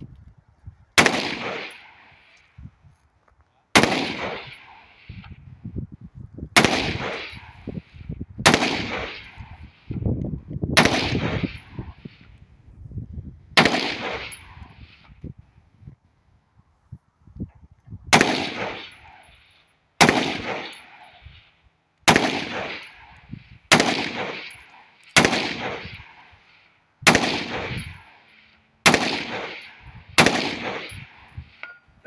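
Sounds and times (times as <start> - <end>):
rifle shots echoing: 1.0 - 2.4, 3.8 - 5.1, 6.6 - 9.9, 10.8 - 12.1, 13.6 - 15.0, 18.1 - 19.4, 20.0 - 21.4, 22.0 - 31.6.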